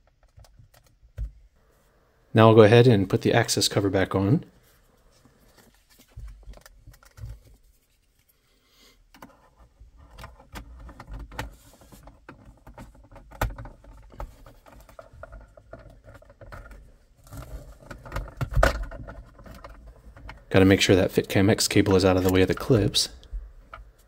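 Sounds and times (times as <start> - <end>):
plastic clicks taps and scrapes: 9.1 - 20.5.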